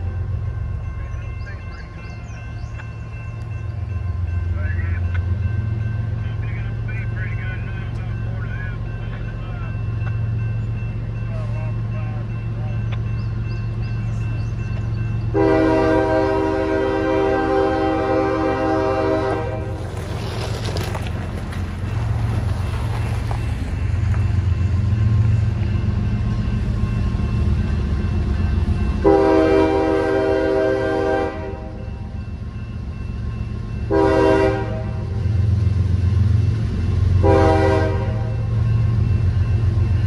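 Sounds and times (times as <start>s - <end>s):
diesel engines low rumble: 0.0s - 40.0s
locomotive air horn blasts: 15.3s - 19.8s, 29.0s - 31.8s, 33.9s - 35.2s, 37.2s - 38.5s.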